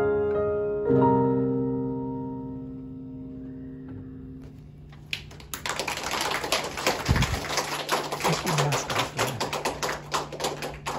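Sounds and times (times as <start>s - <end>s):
small group clapping: 4.9s - 10.9s.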